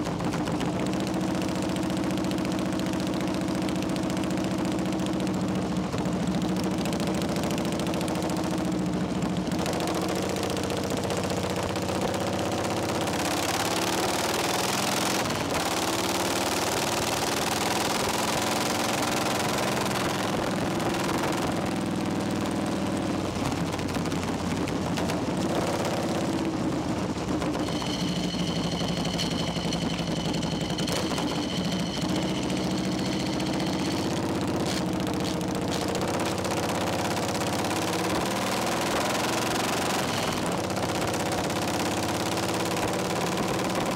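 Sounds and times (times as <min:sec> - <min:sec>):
motorcycle engine running: 0:00.0 - 0:43.9
high steady tone: 0:27.3 - 0:35.6.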